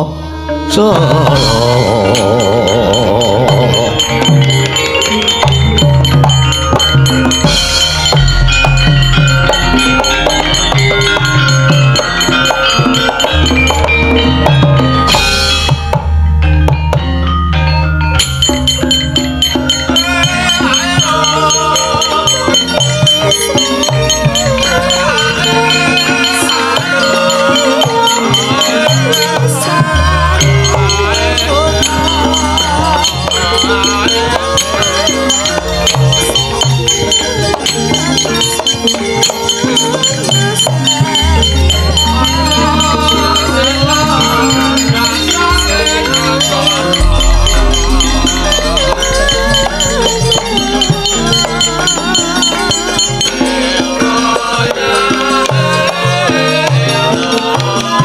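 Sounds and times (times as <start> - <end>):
gamelan ensemble playing: 0.0 - 58.0
metallophones ringing: 0.7 - 58.0
wavering melodic line: 0.7 - 58.0
low gong tones: 40.9 - 53.5.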